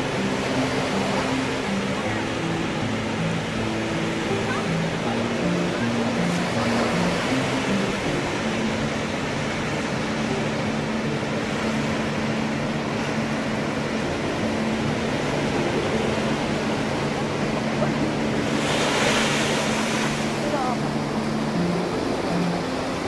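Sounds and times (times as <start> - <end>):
surf rushing: 0.0 - 23.0
wind: 0.0 - 23.0.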